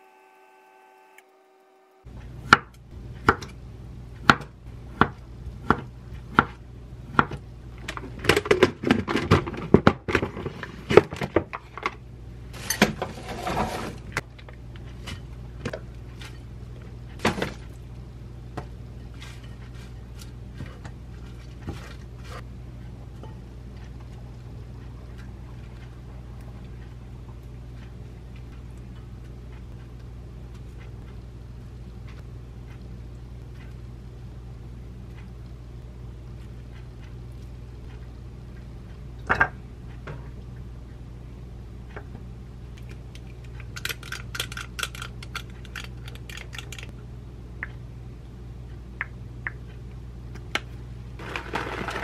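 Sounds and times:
low steady hum: 0.0s - 52.0s
kitchen clatter: 12.6s - 14.2s, 51.2s - 52.0s
rustling of salad ingredients: 51.2s - 52.0s.

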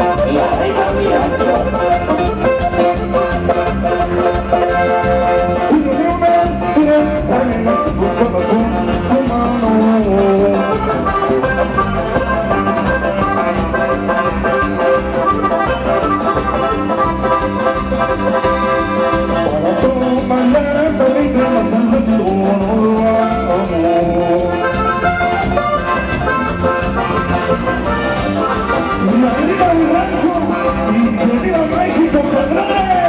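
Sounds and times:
live latin band music: 0.0s - 33.0s.

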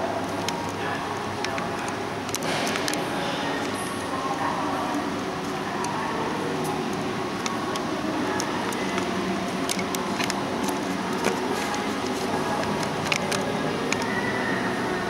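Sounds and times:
steady mechanical hum: 0.0s - 15.0s
light clicks and ticks: 6.6s - 14.2s.

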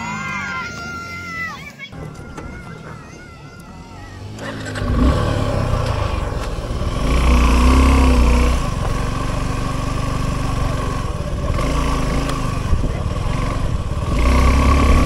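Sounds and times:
motorcycle engine revving: 4.0s - 15.0s.

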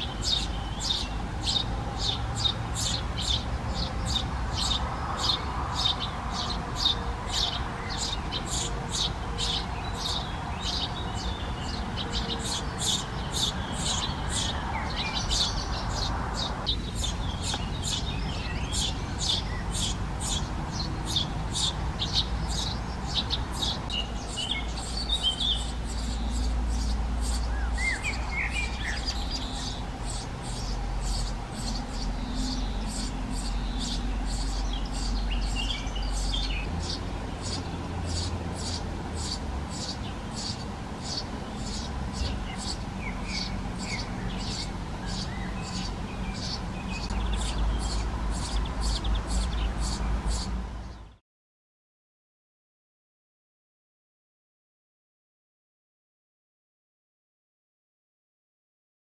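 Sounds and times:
nestlings chirping begging calls: 0.0s - 51.0s.

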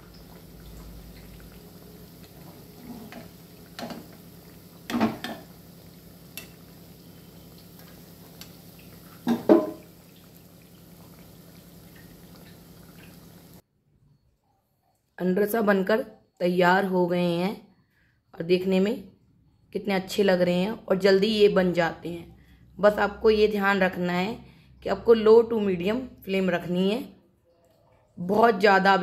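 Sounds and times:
oil sizzling: 0.0s - 13.6s
spoon scraping and knocking pan: 2.8s - 4.2s, 4.8s - 5.5s, 9.2s - 9.9s.

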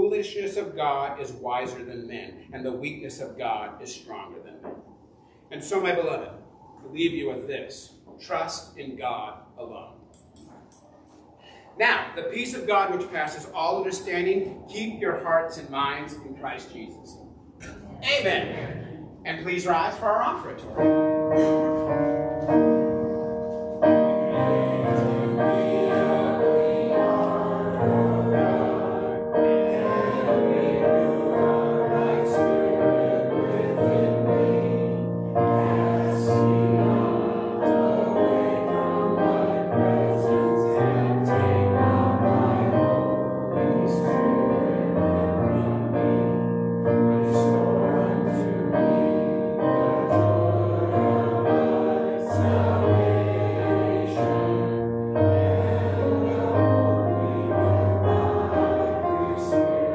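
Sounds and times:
congregation singing a hymn: 18.3s - 59.9s
piano accompaniment: 20.6s - 59.9s.

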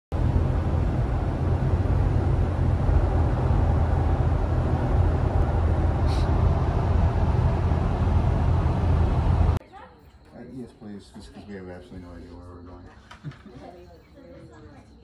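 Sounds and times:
car cabin road rumble: 0.1s - 9.6s.

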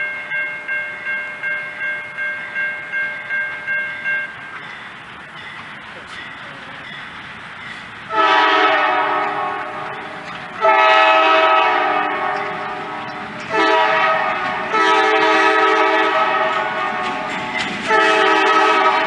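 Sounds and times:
locomotive air horn blasts: 8.1s - 17.3s, 17.9s - 19.0s.

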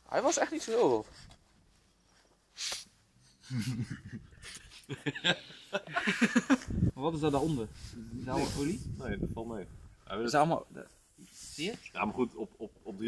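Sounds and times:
men laughing: 3.4s - 6.8s
men talking: 4.9s - 13.0s.

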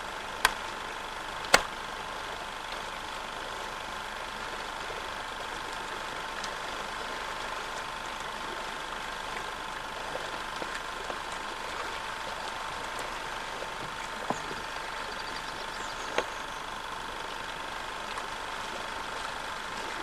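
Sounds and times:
sharp clicks: 1.5s - 1.7s
mechanical hum with hiss: 8.4s - 20.0s.

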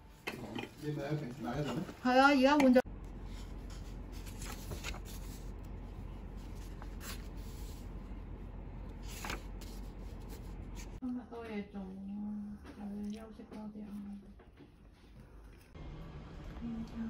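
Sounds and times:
faint steady hum: 0.0s - 17.0s
paper pages rustling: 3.3s - 8.2s, 8.8s - 11.0s.

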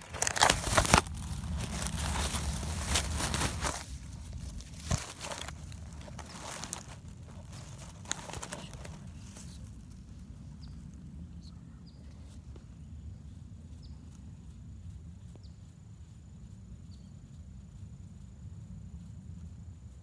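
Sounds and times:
low rumble: 0.0s - 15.3s.

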